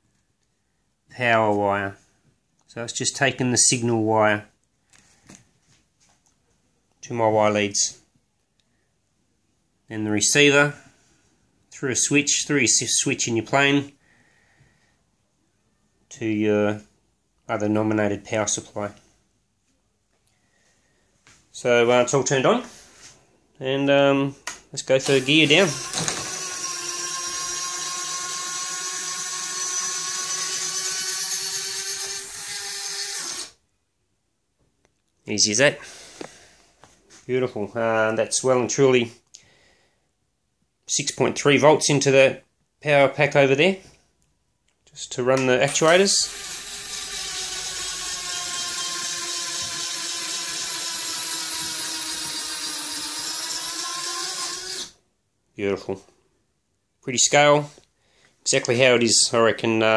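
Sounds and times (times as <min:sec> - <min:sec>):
electric actuators whining: 0:45.7 - 0:55.0.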